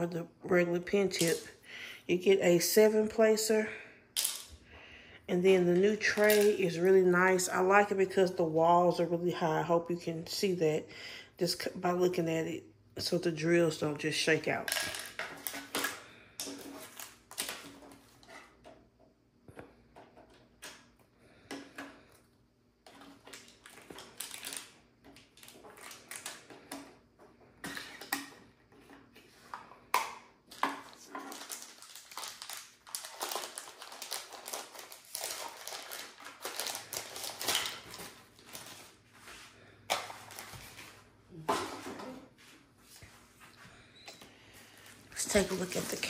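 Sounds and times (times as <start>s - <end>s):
packaging rustling: 22.9s - 26.6s, 30.5s - 39.2s, 39.9s - 41.1s.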